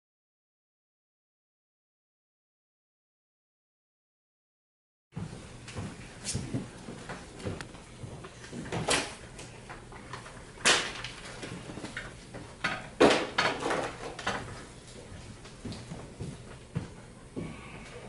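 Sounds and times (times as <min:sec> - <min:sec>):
footsteps: 0:05.2 - 0:09.0, 0:14.1 - 0:18.0
papers rustling: 0:09.8 - 0:12.4.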